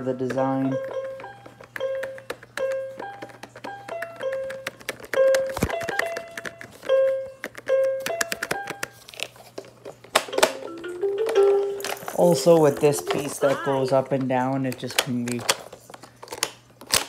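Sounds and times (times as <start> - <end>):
toy electronic melody: 0.5 - 8.8, 10.3 - 13.9
plastic clicks from handling: 14.1 - 17.0.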